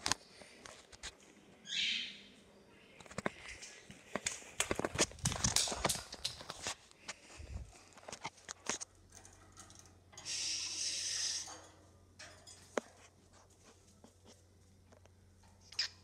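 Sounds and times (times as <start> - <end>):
cockatiel hissing: 10.2 - 11.5.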